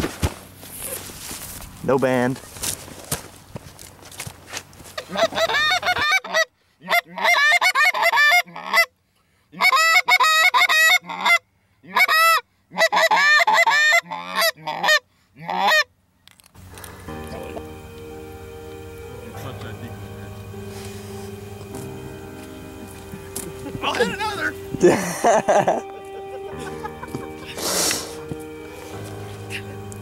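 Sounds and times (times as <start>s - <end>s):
goose call honks and clucks: 5.0s - 8.9s, 9.5s - 15.9s.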